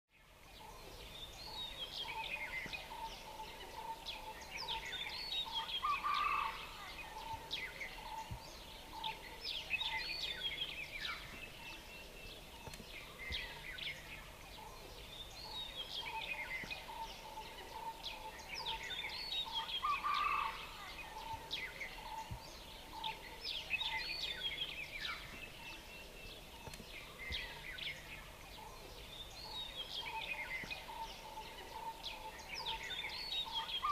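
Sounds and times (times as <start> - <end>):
birds chirping and trilling: 0.1 - 33.9.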